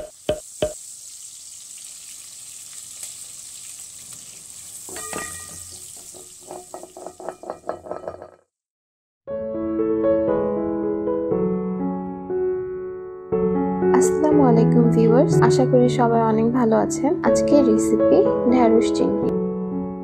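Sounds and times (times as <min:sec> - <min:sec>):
food sizzling in a pan: 0:00.0 - 0:08.3
soft piano music: 0:09.3 - 0:20.0.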